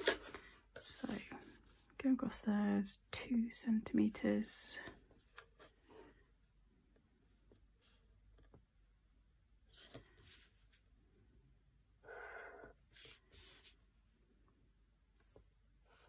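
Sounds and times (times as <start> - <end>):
ruler sliding across paper: 9.7 - 10.6, 12.1 - 13.8.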